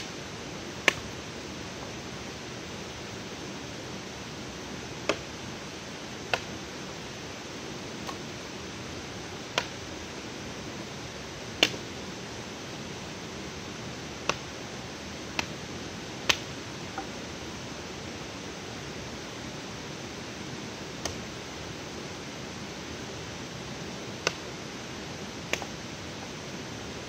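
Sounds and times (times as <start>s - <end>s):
steady forest hiss: 0.0s - 27.0s.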